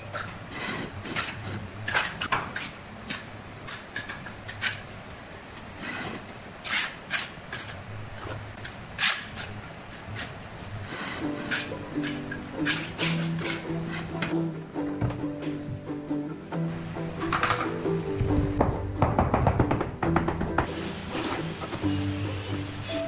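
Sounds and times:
trowel scraping on wet mortar: 0.5s - 7.8s, 8.6s - 14.2s.

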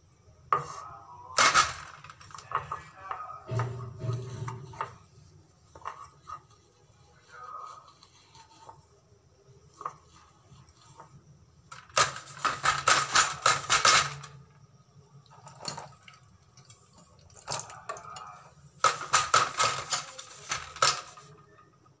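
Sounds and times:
utensils knocking: 3.5s - 5.2s
scouring pad scrubbing steel dishes: 3.5s - 8.9s.

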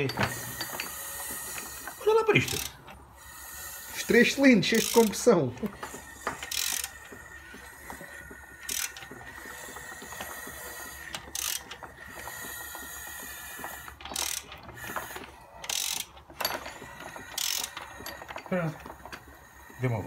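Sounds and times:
ratchet wrench clicking: 0.0s - 18.4s
short hissing bursts: 3.2s - 5.0s.

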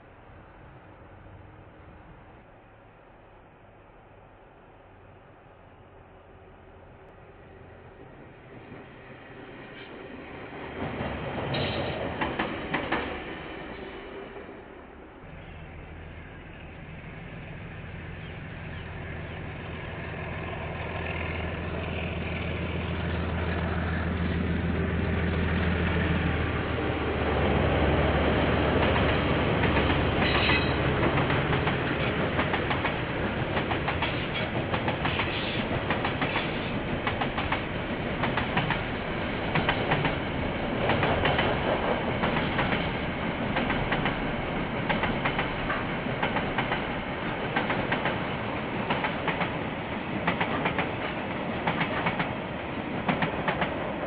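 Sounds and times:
diesel locomotive engine: 0.0s - 54.0s
train wheels clattering: 28.7s - 49.6s, 50.2s - 52.4s.

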